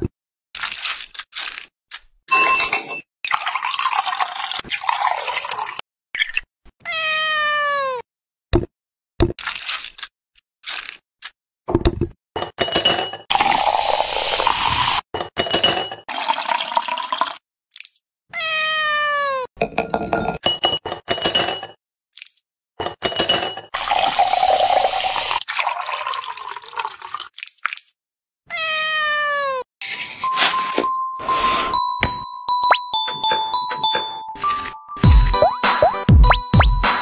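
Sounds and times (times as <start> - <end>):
drink pouring and fizzing: 3.3 - 5.8, 13.3 - 15.0, 16.1 - 17.4, 23.8 - 27.7
cat meowing: 6.8 - 8.0, 18.3 - 19.5, 28.5 - 29.7.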